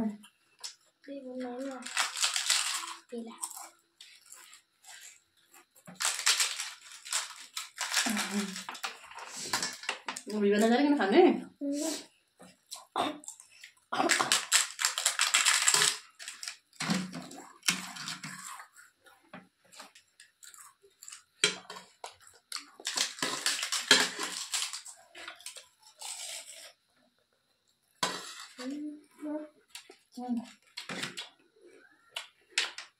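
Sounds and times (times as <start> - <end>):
crunching of crisp food: 1.7 - 10.3, 12.7 - 18.9, 19.8 - 26.8.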